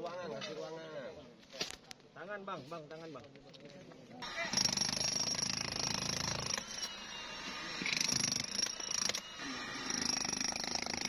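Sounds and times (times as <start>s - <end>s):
power tool whining: 4.2s - 11.0s.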